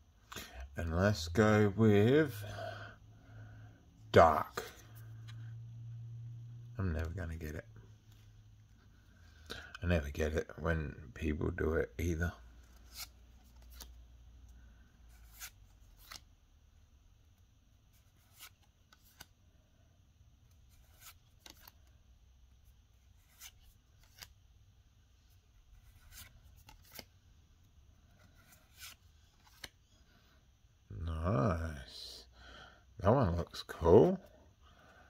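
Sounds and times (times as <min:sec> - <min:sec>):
trading cards sliding and clicking: 0:12.6 - 0:16.3, 0:17.9 - 0:19.4, 0:20.4 - 0:22.0, 0:22.9 - 0:24.4, 0:25.2 - 0:30.3.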